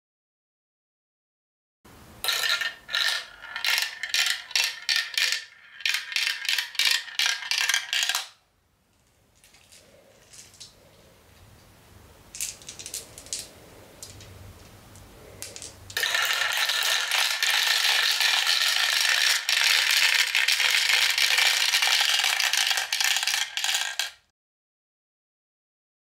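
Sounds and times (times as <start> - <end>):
marbles rattling down plastic track: 2.2 - 8.4, 12.4 - 14.2, 15.4 - 24.3.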